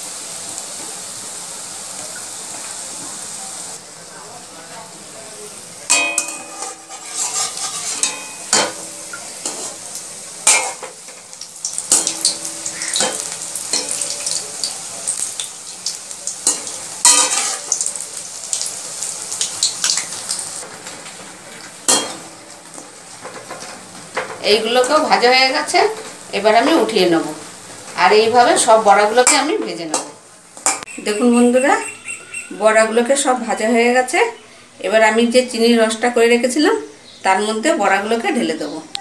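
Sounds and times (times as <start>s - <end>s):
fritters sizzling in hot oil: 0.0s - 30.9s
metal skimmer scraping pan: 5.9s - 11.0s, 16.5s - 17.8s.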